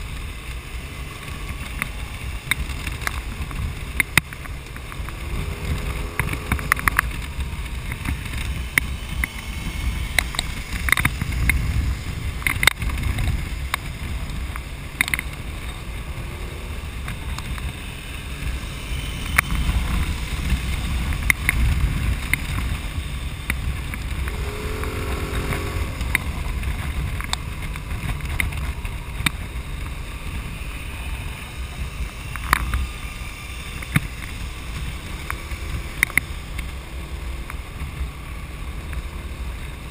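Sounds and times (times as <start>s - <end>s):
motorcycle engine and road rumble: 0.0s - 39.9s
wind buffeting camera: 0.0s - 39.9s
sharp clicks and knocks: 12.4s - 15.8s
short wavering pitched sound: 24.1s - 26.6s.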